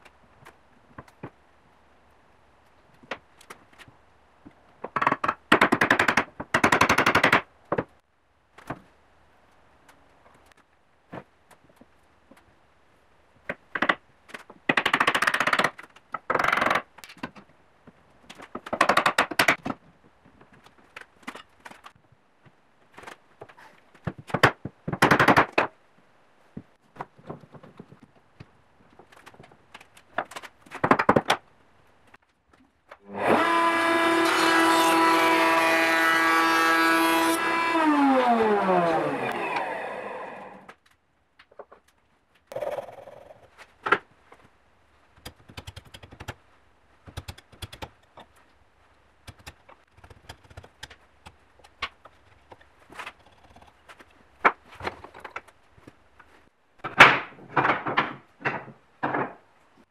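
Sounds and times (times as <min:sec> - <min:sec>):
router running and winding down: 0:33.1 - 0:40.7.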